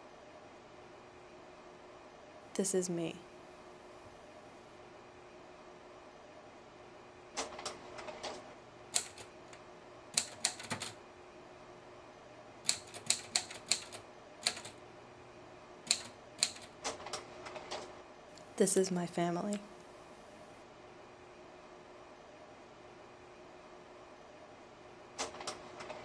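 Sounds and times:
typewriter key strikes: 9.0s - 9.3s, 10.2s - 10.9s, 12.7s - 14.8s, 15.9s - 16.7s.

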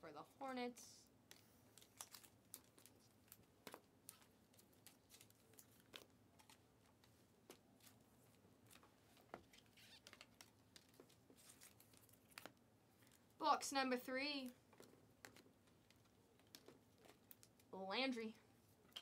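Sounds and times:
foil card pack crinkling: 1.8s - 6.6s.

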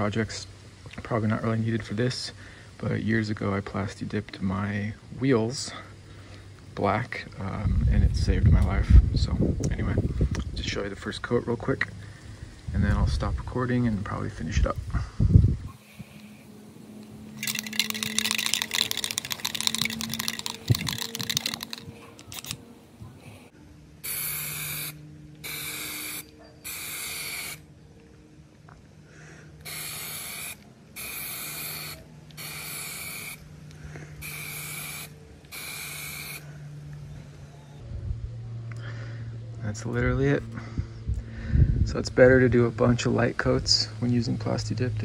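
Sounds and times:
dense rattling hiss: 15.8s - 23.0s
aerosol spray hissing bursts: 24.1s - 27.6s, 29.6s - 33.4s, 34.2s - 36.4s.

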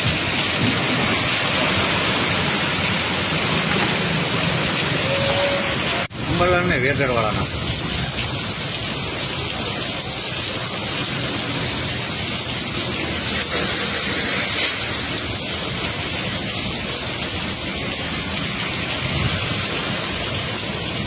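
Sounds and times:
heavy rain on a street: 0.0s - 21.0s.

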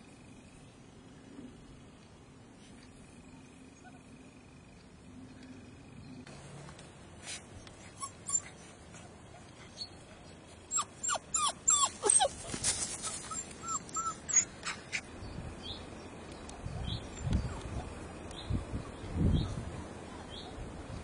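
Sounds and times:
puppy whining: 7.9s - 8.7s, 10.7s - 15.0s
puppy yelping: 8.0s - 8.6s, 10.7s - 15.0s.

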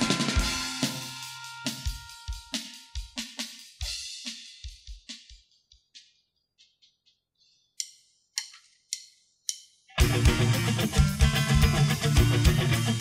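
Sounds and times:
kick drum and cymbal hits: 0.0s - 6.0s.

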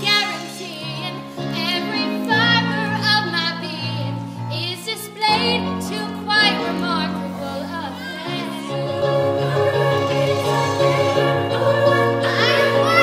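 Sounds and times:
held accompaniment chords: 5.6s - 13.0s.

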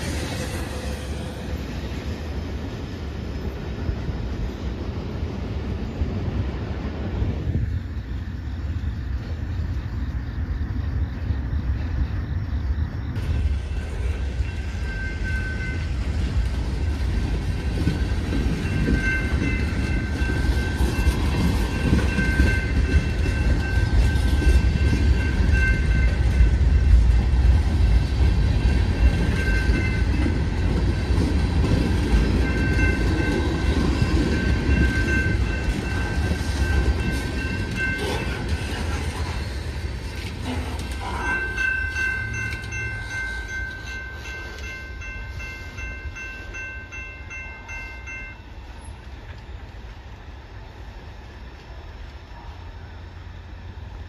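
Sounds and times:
steel wheels rumbling on rail: 0.0s - 54.0s
thin high tones: 40.1s - 48.5s.

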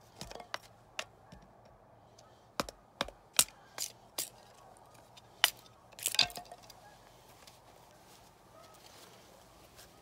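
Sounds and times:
tomahawk chopping wooden stick: 2.6s - 4.4s.

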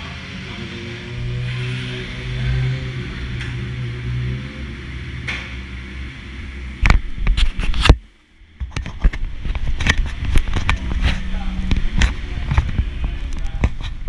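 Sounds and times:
sharp exhaust cracks and pops: 8.6s - 14.0s.

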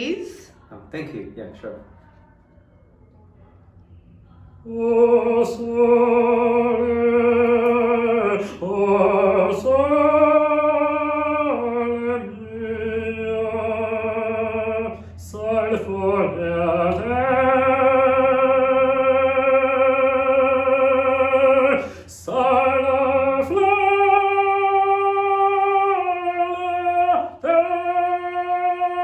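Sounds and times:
man singing opera: 4.6s - 29.0s
singer breathing: 21.8s - 22.1s.

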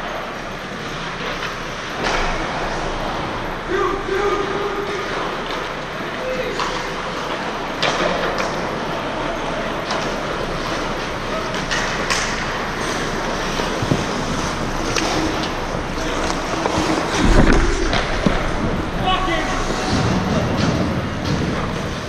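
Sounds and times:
hockey stick clacks: 6.6s - 8.8s, 9.8s - 18.5s
skates scraping on ice: 10.0s - 22.0s
puck hits: 11.5s - 21.7s
heavy low thump: 17.1s - 20.6s.

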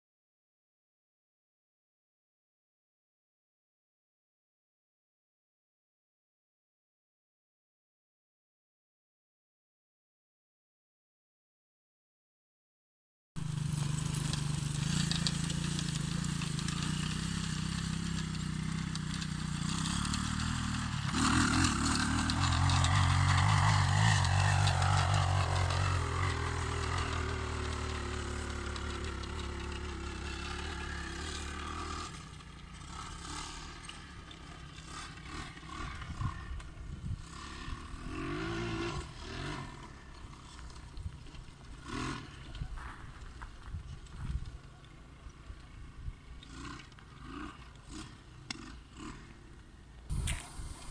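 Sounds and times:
quad bike engine running: 13.4s - 50.9s.

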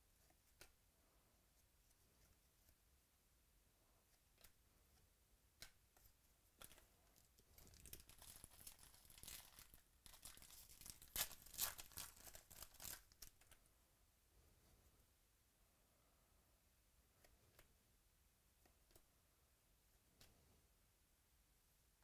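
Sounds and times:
foil pack crinkling: 7.6s - 13.6s.

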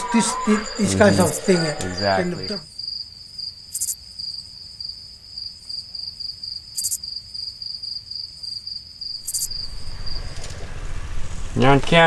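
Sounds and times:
insects chirping trill: 0.0s - 11.1s
faint low rumble: 9.5s - 12.0s.

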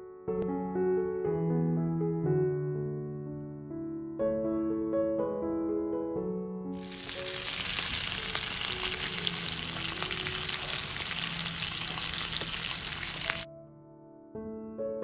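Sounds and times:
soft piano music: 0.0s - 15.0s
oil sizzling with small pops: 6.8s - 13.5s.

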